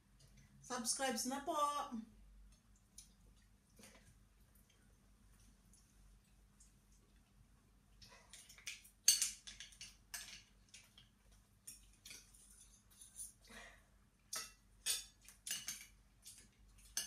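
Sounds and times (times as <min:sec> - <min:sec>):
plates and utensils clinking: 0:14.4 - 0:17.0.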